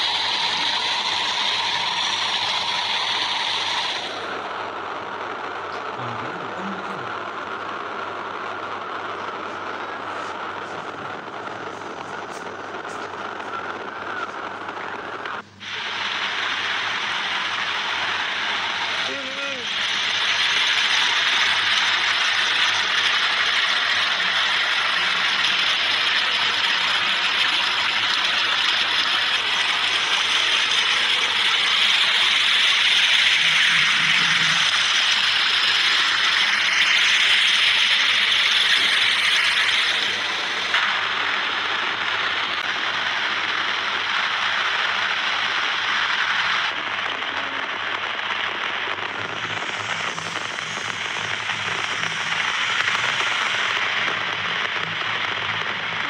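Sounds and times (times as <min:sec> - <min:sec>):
heavy rain falling: 0:00.0 - 0:45.6, 0:46.2 - 0:56.0
water gushing into concrete tank: 0:15.6 - 0:40.9.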